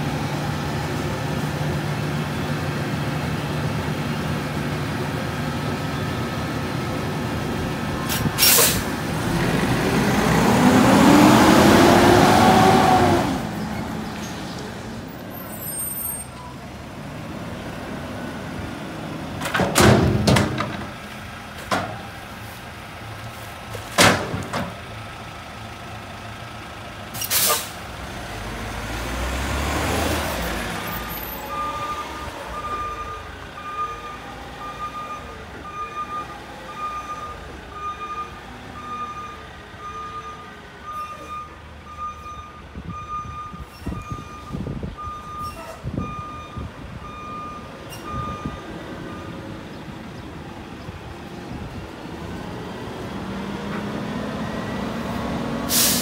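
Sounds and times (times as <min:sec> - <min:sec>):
diesel engine revving: 0:00.0 - 0:56.0
air brake hiss: 0:08.1 - 0:08.9, 0:27.2 - 0:27.8, 0:55.7 - 0:56.0
backup alarm beeping: 0:31.5 - 0:49.3.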